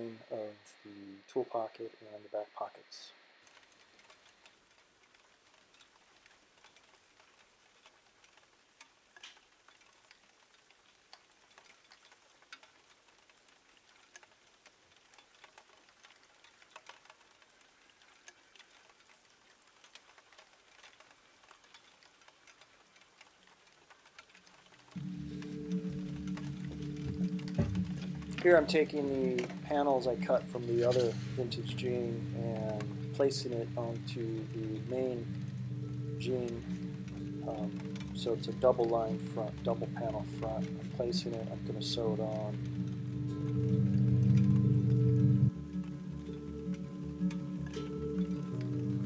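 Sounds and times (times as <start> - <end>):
faint hiss: 0.0 - 49.0
light ticks: 3.4 - 49.0
music: 25.0 - 49.0.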